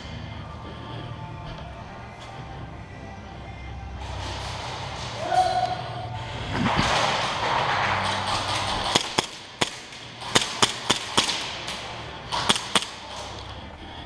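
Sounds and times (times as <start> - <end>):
airsoft pistol shots: 8.9 - 11.8, 12.4 - 13.0.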